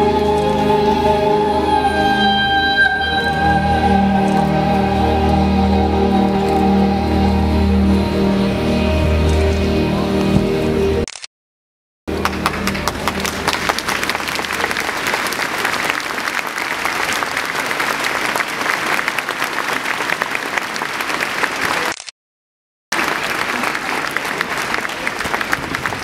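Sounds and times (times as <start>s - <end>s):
low music notes: 0.0s - 11.0s, 12.1s - 14.7s
crowd applauding: 12.1s - 22.0s, 22.9s - 26.0s.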